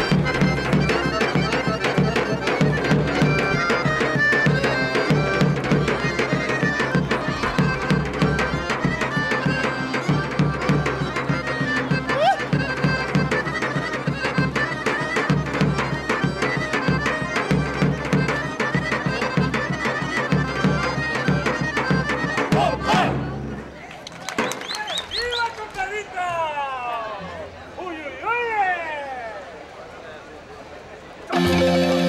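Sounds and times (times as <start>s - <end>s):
drum beating steady rhythm: 0.0s - 24.7s, 31.3s - 32.0s
melody instrument holding notes: 31.3s - 32.0s.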